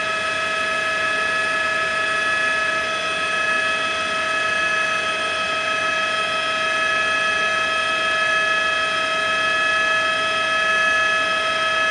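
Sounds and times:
helicopter whine: 0.0 - 11.9.

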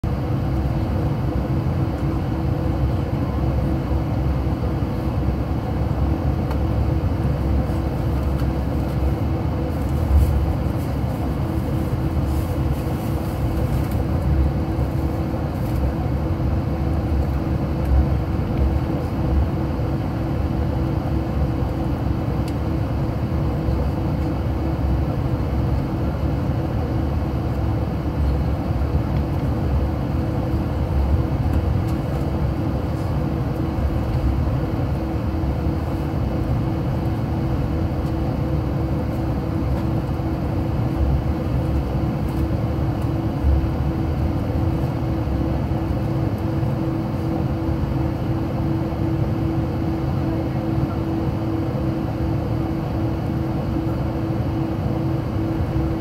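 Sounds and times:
jet engines humming: 0.0 - 56.0.

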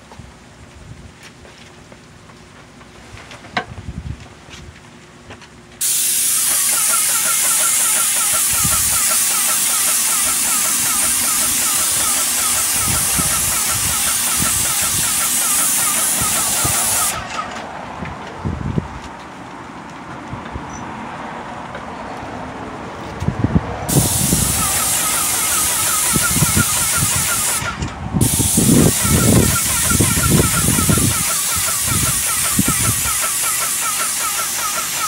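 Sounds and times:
paint sprayer hissing: 5.8 - 17.6, 23.9 - 35.0.

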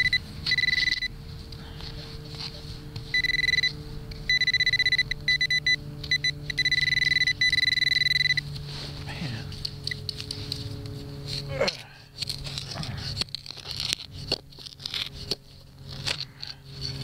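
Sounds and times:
metal detector pulsing alert tone: 0.0 - 1.2, 3.1 - 8.5
faint steady hum: 0.0 - 17.0.

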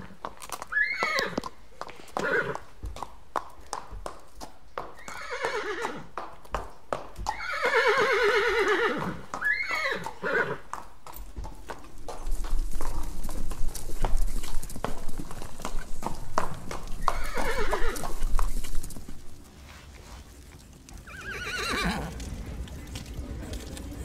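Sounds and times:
horse hooves clip-clopping: 0.0 - 24.0
horse whinnying: 0.6 - 1.5, 2.2 - 2.6, 5.0 - 6.1, 7.3 - 10.7, 17.0 - 18.3, 21.0 - 22.2.

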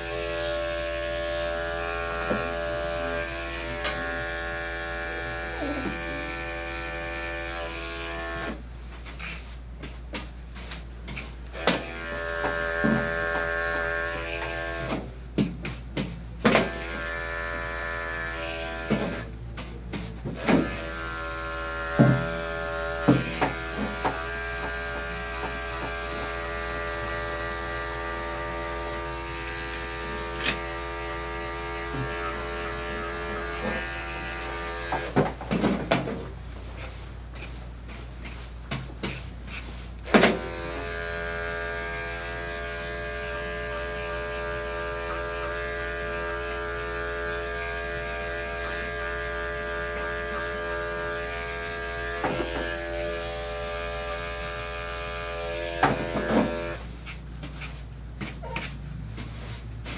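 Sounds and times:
electric clippers buzzing: 0.0 - 8.6, 11.5 - 15.0, 16.5 - 19.3, 20.4 - 35.2, 40.0 - 56.8.

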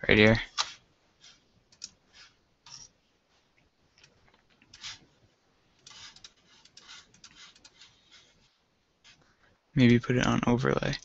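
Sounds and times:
computer mouse and keyboard clicks: 0.5 - 2.9, 4.0 - 5.0, 5.8 - 8.3.

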